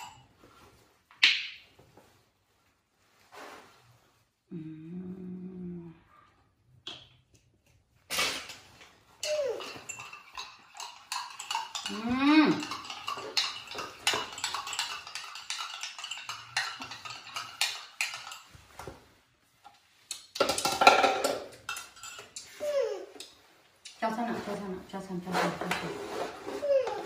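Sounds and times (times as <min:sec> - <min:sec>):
teaspoon clinking in ceramic mug: 0:09.2 - 0:18.5.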